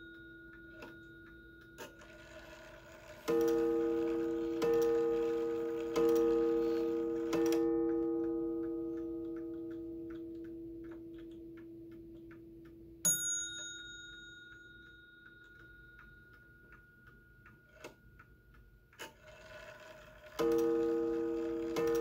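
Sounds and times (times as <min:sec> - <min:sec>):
clock gong strike ringing: 0:00.0 - 0:10.1, 0:19.3 - 0:22.0
clock ticking: 0:00.0 - 0:22.0.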